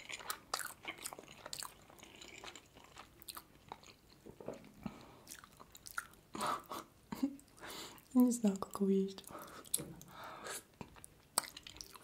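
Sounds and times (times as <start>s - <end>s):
chewing mouth clicks and smacks: 0.0s - 4.4s, 5.3s - 6.2s, 10.8s - 12.0s.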